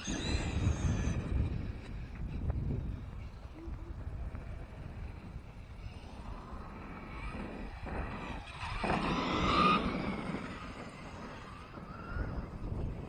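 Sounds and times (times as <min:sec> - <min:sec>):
tyres on dirt: 0:00.0 - 0:03.5, 0:04.1 - 0:13.0.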